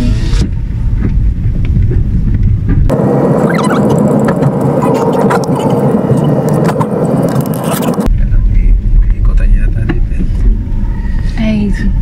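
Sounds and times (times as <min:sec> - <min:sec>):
car engine and road rumble: 0:00.0 - 0:12.0
hissing road noise with crackles: 0:01.0 - 0:08.1.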